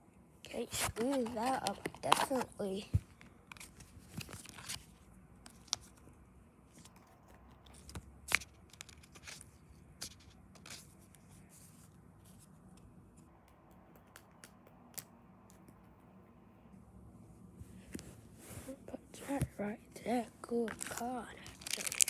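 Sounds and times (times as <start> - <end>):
cards and plastic rustling: 0.4 - 6.1, 6.7 - 12.7, 18.7 - 22.0.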